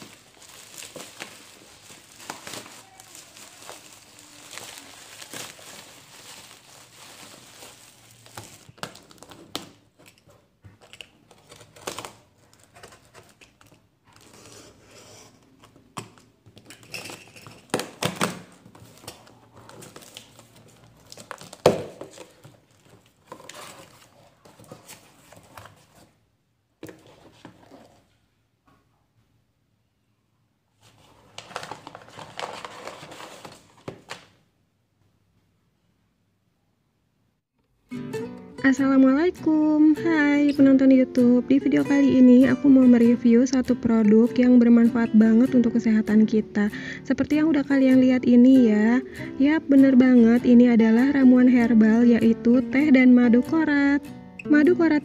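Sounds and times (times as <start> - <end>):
bubble wrap crinkling: 0.0 - 10.2, 10.8 - 14.5, 16.6 - 26.2, 30.8 - 34.4.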